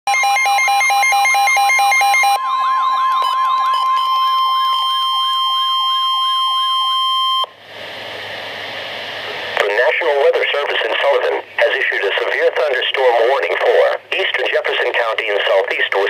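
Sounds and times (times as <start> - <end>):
rapid pulsing beeps: 0.1 - 7.5
steady high tone: 0.1 - 7.6
warbling siren: 0.1 - 7.6
radio hiss: 7.7 - 16.0.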